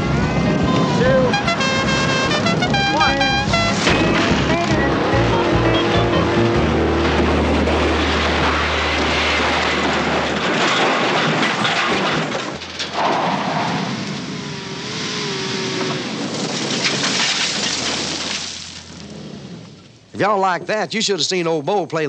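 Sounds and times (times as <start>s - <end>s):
car engines running: 0.0s - 20.7s
car crashing and rolling: 3.6s - 15.2s, 15.8s - 19.8s.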